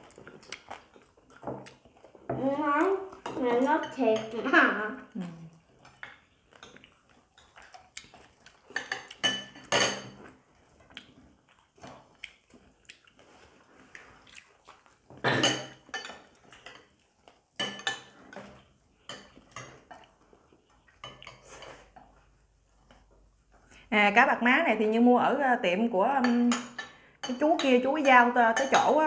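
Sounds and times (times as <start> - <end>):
cutlery clinking on ceramic bowls: 8.7 - 10.3, 15.2 - 17.0, 17.6 - 20.1, 26.2 - 29.0.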